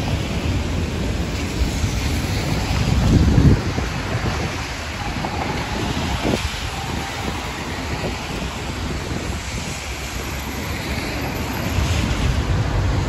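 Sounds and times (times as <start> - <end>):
car passing on wet road: 0.0 - 13.0
rain hiss: 0.0 - 13.0
wet traffic: 0.0 - 13.0
wind buffeting microphone: 0.0 - 13.0.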